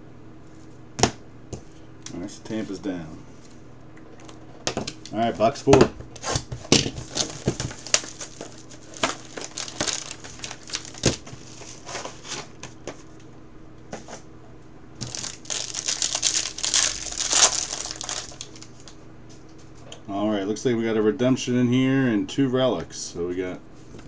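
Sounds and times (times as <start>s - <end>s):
cardboard box clicks and rustles: 6.8s - 12.5s, 15.0s - 18.7s
foil wrapper crinkling: 6.8s - 12.6s, 15.0s - 19.0s.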